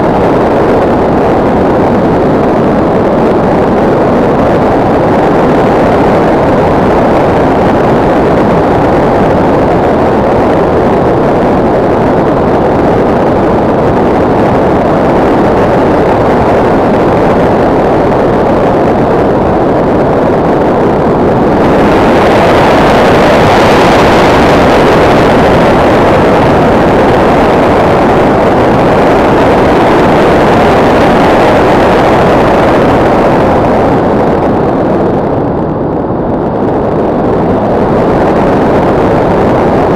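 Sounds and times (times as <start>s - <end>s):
air rushing past camera: 0.0s - 39.9s.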